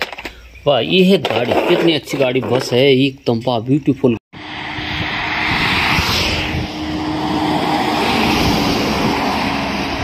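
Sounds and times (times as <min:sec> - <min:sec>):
bus driving by: 0:04.4 - 0:10.0
car driving by: 0:04.4 - 0:10.0.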